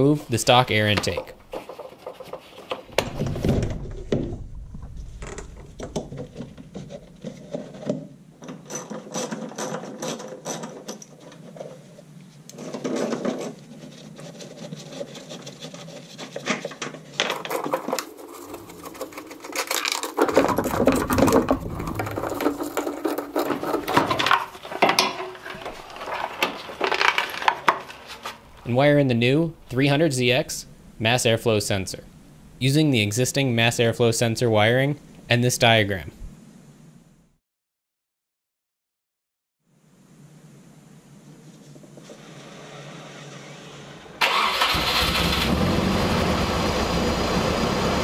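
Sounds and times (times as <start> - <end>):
hand tools clicking and rattling: 5.9 - 11.8, 14.5 - 28.5.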